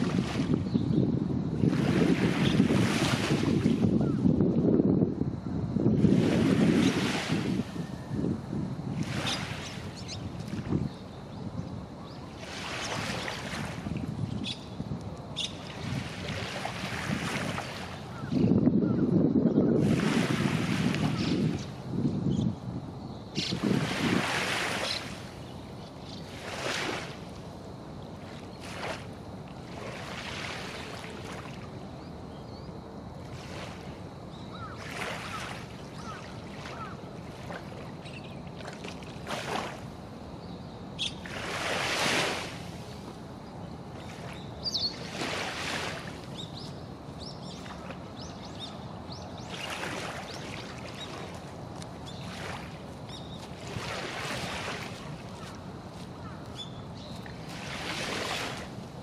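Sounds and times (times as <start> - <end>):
small waves lapping: 0.0 - 0.6, 1.6 - 3.9, 12.0 - 14.2, 15.4 - 18.3, 23.6 - 32.3, 32.9 - 40.3, 41.1 - 59.0
soft water splash: 34.8 - 39.8, 49.4 - 55.6.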